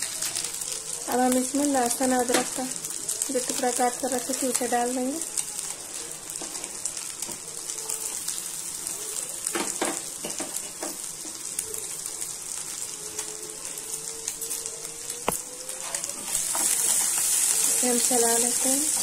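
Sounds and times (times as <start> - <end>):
garlic sizzling in hot oil: 0.0 - 19.0.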